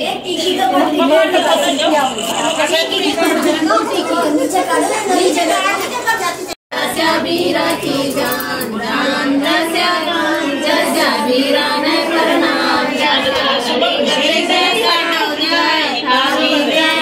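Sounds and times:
women singing folk song: 0:06.7 - 0:17.0.

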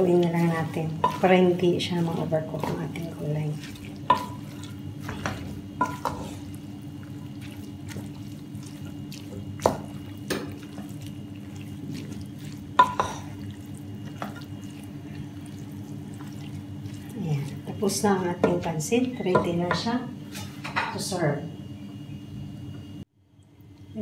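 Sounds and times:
spatula stirring noodles in pot: 0:00.0 - 0:19.6
low steady hum: 0:00.0 - 0:24.0
spatula knocking against pot: 0:19.3 - 0:19.9.

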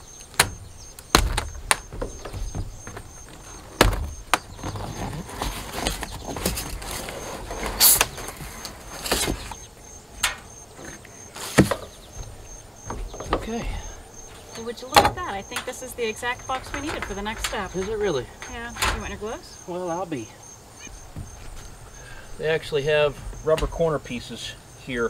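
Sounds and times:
cardboard scraping: 0:01.3 - 0:09.7, 0:10.8 - 0:11.9.

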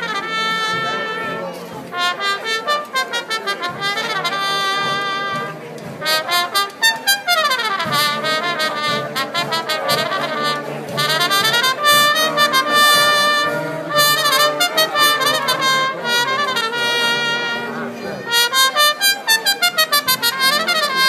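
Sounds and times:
solo trumpet runs: 0:00.0 - 0:21.0
wind band playing: 0:00.0 - 0:21.0.

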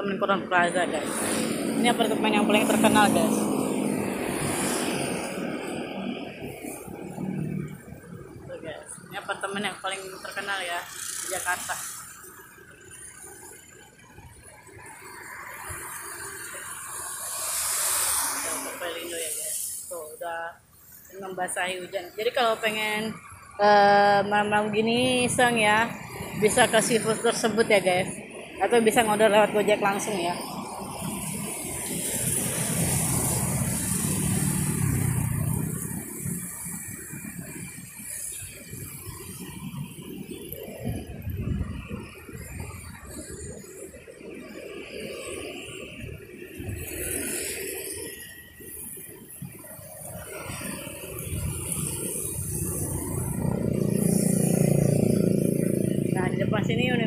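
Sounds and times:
vehicle engine passing: 0:00.0 - 0:43.9, 0:49.9 - 0:57.0
rain on a wet street: 0:01.0 - 0:05.8, 0:10.0 - 0:20.2, 0:28.3 - 0:41.6, 0:46.5 - 0:56.1.

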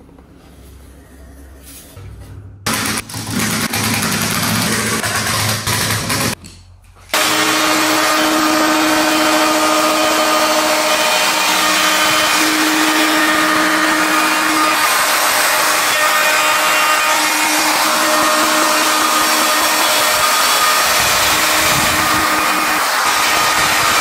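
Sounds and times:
power tool motor humming: 0:07.1 - 0:24.0.

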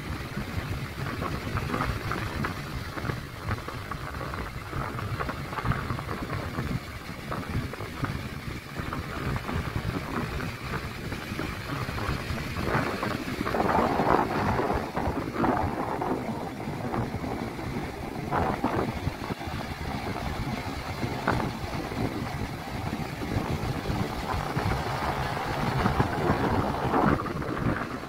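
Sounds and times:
wind buffeting microphone: 0:00.0 - 0:28.0
sea waves breaking on beach: 0:11.4 - 0:28.0.

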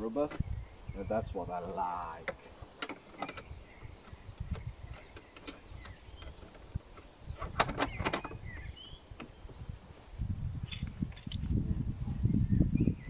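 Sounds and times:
bird chirps: 0:00.0 - 0:06.7, 0:07.8 - 0:09.6.

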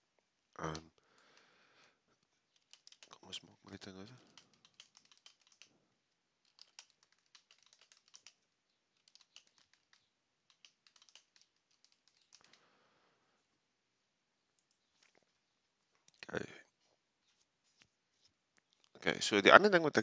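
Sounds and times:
typing on computer keyboard: 0:02.5 - 0:03.3, 0:04.0 - 0:05.8, 0:06.4 - 0:12.6.

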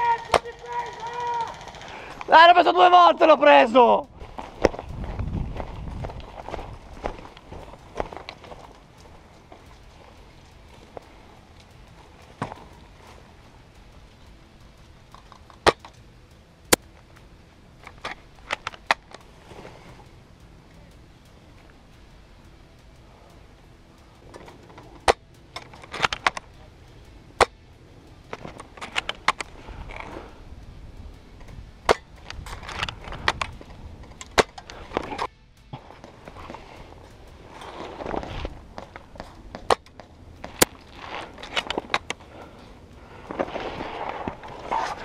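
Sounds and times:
sharp clicks and knocks of gear: 0:00.0 - 0:45.0.

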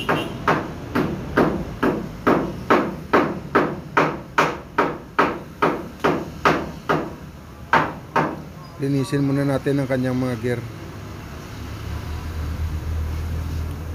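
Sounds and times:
hammer blows ringing: 0:00.0 - 0:08.5.

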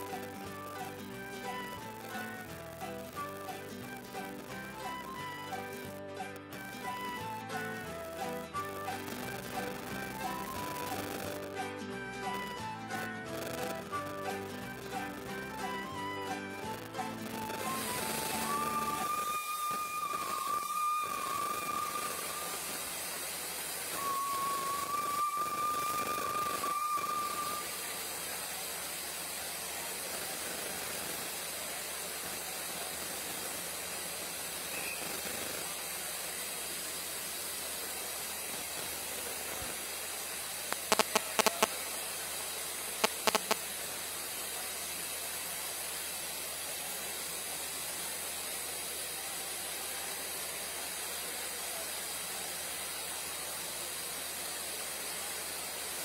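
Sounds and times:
steam hissing: 0:00.0 - 0:56.0
sharp clicks: 0:40.7 - 0:41.8, 0:43.0 - 0:43.6.

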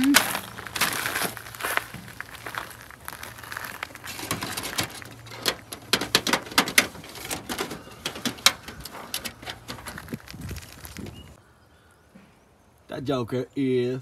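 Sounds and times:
aluminium foil pans crinkling: 0:00.0 - 0:11.4.

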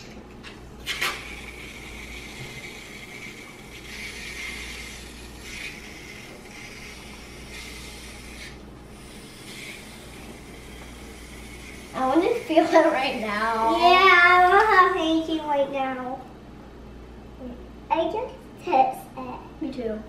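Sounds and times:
aerosol cans spraying foam: 0:00.8 - 0:13.4.

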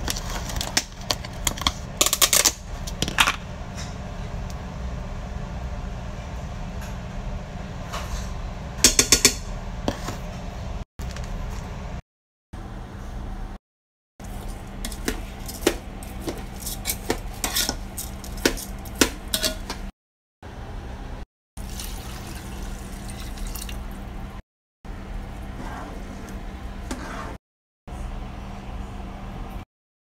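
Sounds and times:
metal spoon stirring in a pot: 0:14.2 - 0:19.9.

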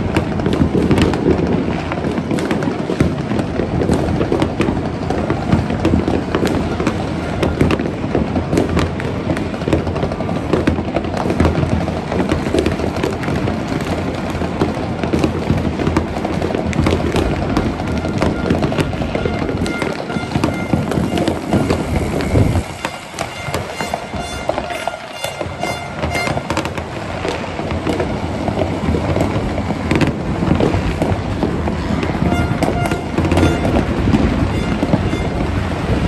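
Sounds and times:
fireworks bangs and crackling: 0:00.0 - 0:36.0
high pitched tones: 0:18.0 - 0:26.8, 0:32.2 - 0:35.5.

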